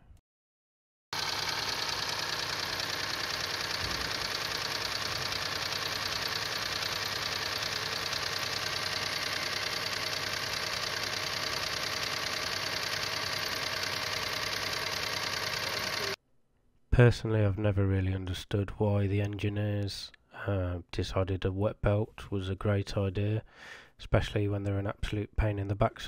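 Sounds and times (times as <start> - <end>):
car engine idling with rapid knock: 1.2 - 16.2.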